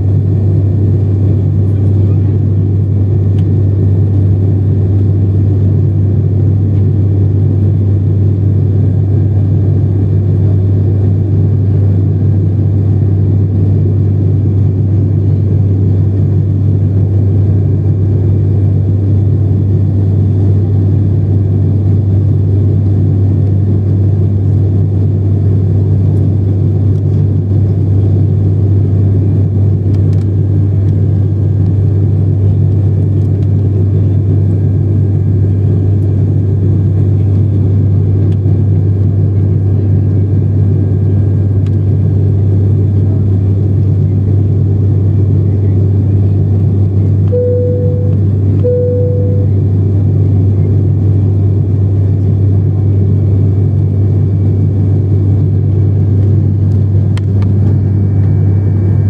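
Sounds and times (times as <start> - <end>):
propeller plane cabin drone: 0.0 - 59.0
faint high whine: 47.2 - 50.7.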